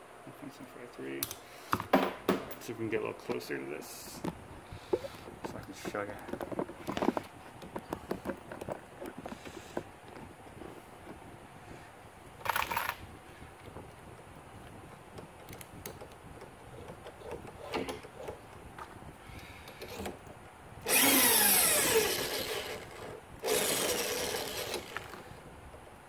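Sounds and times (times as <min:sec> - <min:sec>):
drill spinning case trimmer: 0:20.8 - 0:25.4.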